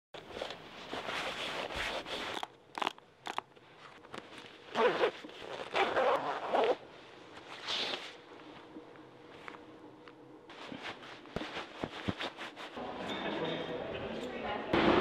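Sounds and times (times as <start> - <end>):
jacket zipper rasping: 0.2 - 3.4, 4.6 - 6.8
clothing rustling: 0.2 - 12.8.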